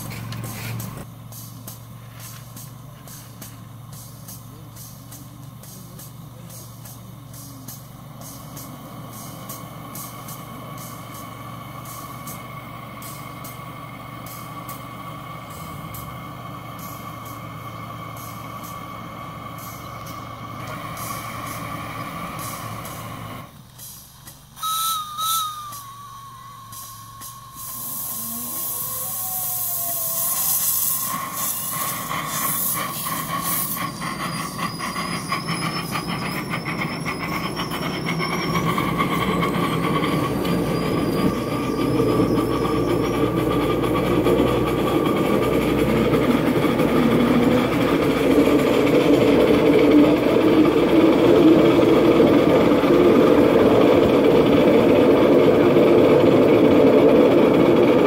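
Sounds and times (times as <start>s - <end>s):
rapid exhaust chuffs: 0.0s - 58.0s
steam hiss: 0.0s - 58.0s
train running on track: 0.0s - 58.0s
wheels squealing: 0.0s - 58.0s
wavering steam whistle: 24.5s - 58.0s.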